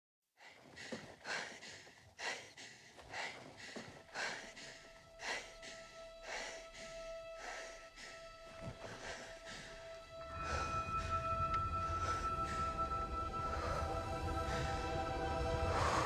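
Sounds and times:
person breathing hard: 0:00.4 - 0:16.0
held musical tone: 0:03.9 - 0:16.0.

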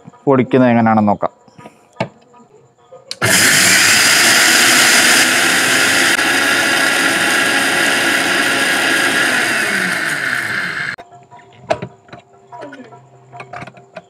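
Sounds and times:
mixer grinder motor whirring: 0:03.1 - 0:11.0.

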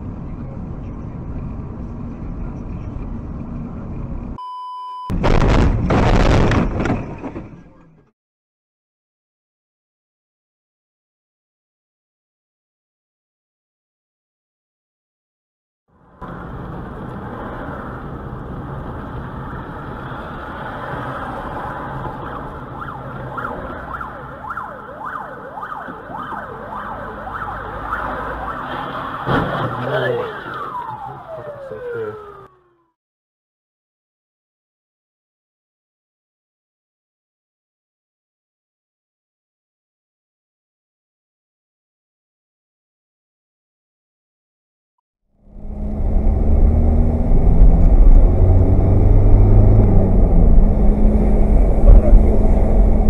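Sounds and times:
car road and engine noise: 0:00.0 - 0:04.5, 0:15.9 - 0:32.9, 0:45.3 - 0:53.0
short electronic beep: 0:04.4 - 0:05.2
car crashing along metal fence: 0:05.2 - 0:07.9, 0:28.6 - 0:30.1
fire engine siren wailing: 0:21.6 - 0:33.0.

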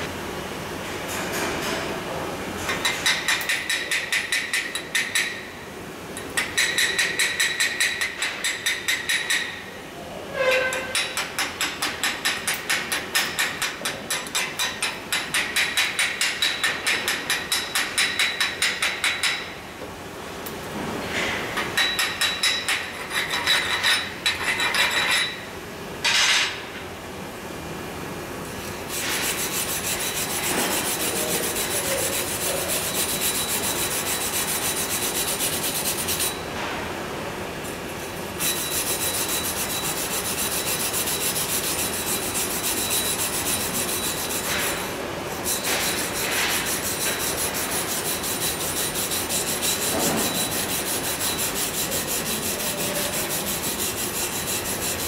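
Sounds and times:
wire brush scratching steel: 0:28.9 - 0:36.4, 0:38.4 - 0:55.0.

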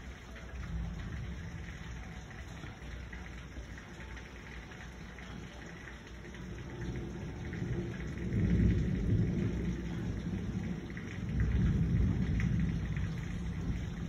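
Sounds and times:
heavy rain: 0:00.0 - 0:14.0
rolling thunder: 0:06.8 - 0:14.0.

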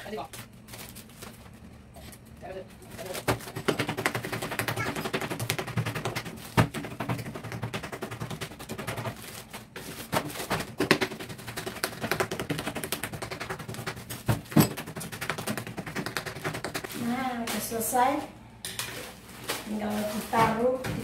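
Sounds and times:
plastic bags crackling: 0:00.0 - 0:03.6, 0:18.9 - 0:21.0.

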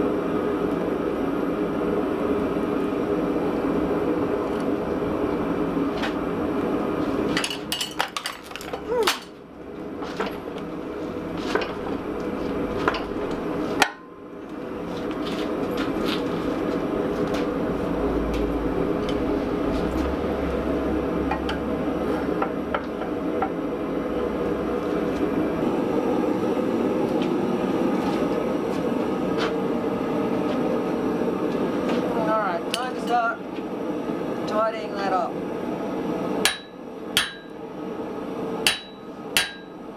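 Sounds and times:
forging press mechanical drone: 0:15.6 - 0:28.6, 0:36.4 - 0:37.7, 0:38.6 - 0:39.9.

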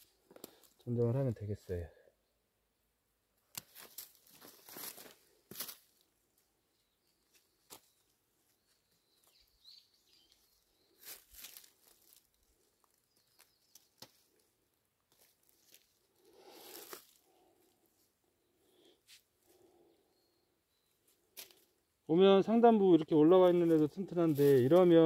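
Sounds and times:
leaves and plastic rustling: 0:03.6 - 0:06.0, 0:10.4 - 0:17.4, 0:23.4 - 0:25.0.

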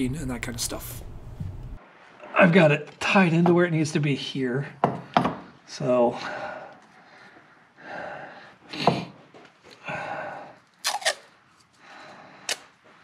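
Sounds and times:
tape tearing with snaps: 0:10.8 - 0:11.3.

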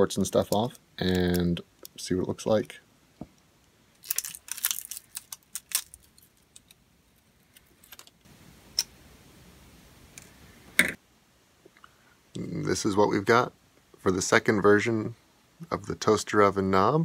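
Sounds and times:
plastic clicks and crackles: 0:04.0 - 0:06.8, 0:07.4 - 0:08.2.

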